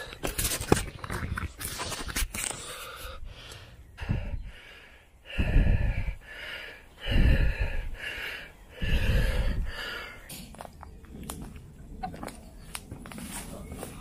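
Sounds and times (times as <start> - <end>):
person breathing hard: 1.7 - 10.3.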